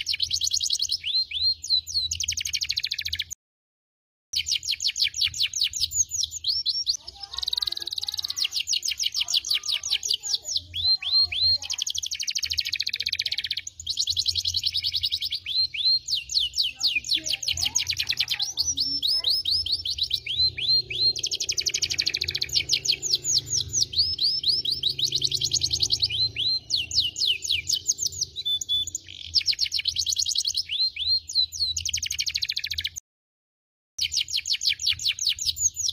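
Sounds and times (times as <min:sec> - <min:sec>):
canary singing: 0:00.0 - 0:03.4, 0:04.4 - 0:33.0, 0:34.0 - 0:35.9.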